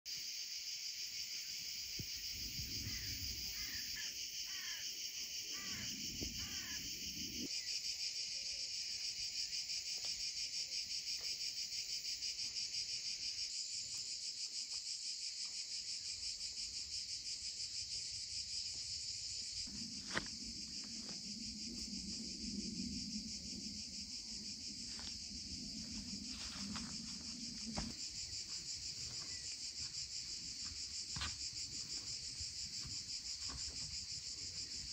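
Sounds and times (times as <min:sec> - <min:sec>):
field insects chirring: 0:00.1 - 0:34.9
low hum: 0:19.7 - 0:27.9.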